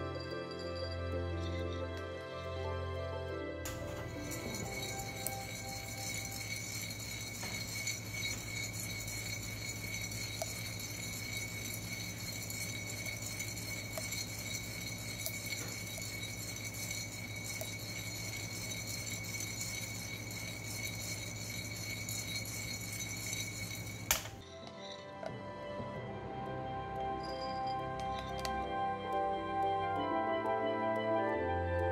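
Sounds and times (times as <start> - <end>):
coffee beans rattling in a roaster: 3.7 - 24.6.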